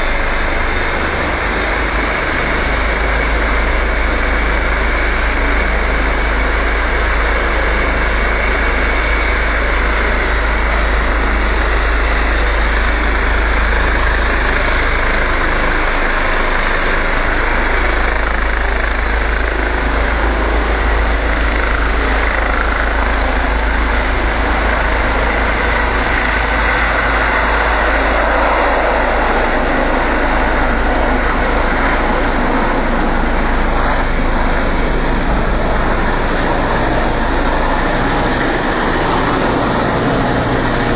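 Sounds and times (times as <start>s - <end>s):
helicopter turbine and rotor: 0.0s - 40.9s.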